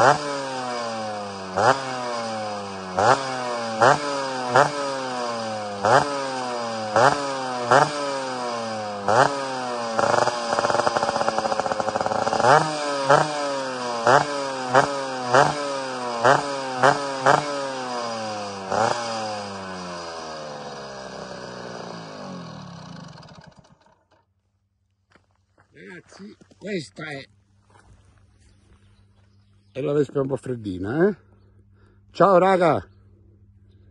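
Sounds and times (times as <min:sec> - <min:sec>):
scooter engine revving and idling: 0:00.0 - 0:24.2.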